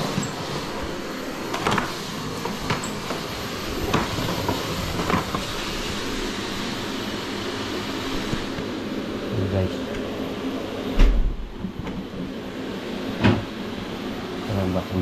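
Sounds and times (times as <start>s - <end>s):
steady rushing noise: 3.0s - 9.0s.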